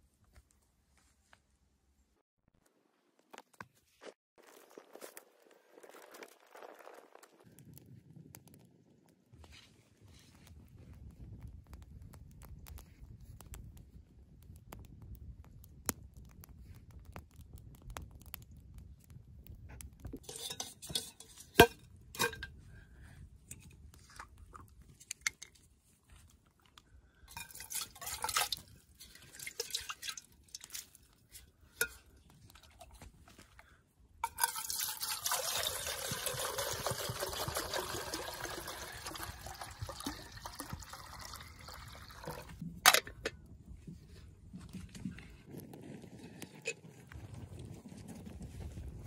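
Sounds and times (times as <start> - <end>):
water pouring into metal kettle: 27.3 - 30.8, 34.2 - 42.6.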